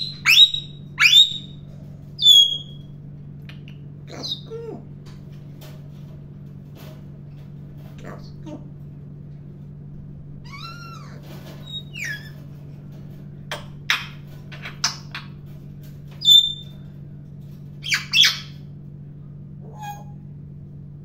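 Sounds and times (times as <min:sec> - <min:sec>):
parrot squawking: 0:00.0 - 0:01.6, 0:02.2 - 0:02.8, 0:04.1 - 0:04.8, 0:10.4 - 0:12.4, 0:17.8 - 0:18.6, 0:19.6 - 0:20.2
parrot whistling: 0:00.0 - 0:01.6, 0:02.2 - 0:02.8.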